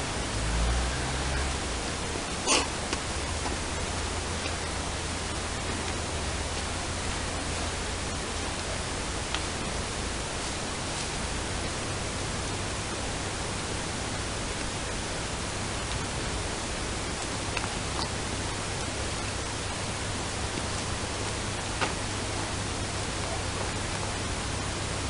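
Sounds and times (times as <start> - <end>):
steady background hiss: 0.0 - 25.0
faint clicks: 9.3 - 9.5.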